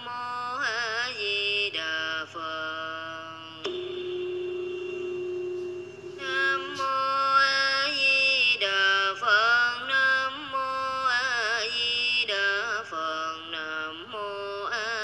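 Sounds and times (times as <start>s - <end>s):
woman chanting: 0.0s - 3.9s, 5.9s - 15.0s.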